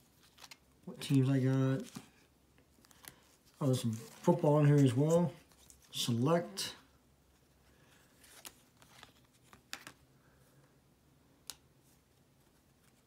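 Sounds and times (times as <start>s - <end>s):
trading cards tapping and rustling: 8.2s - 10.0s.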